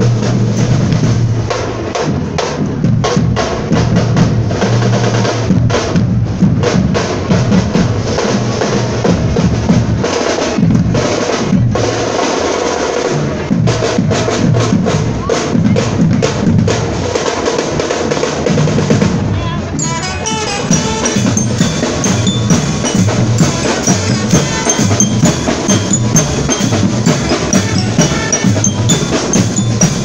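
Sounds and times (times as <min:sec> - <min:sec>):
bass drums booming: 0:00.0 - 0:11.9, 0:20.6 - 0:30.0
rapid snare drum strokes: 0:20.3 - 0:30.0.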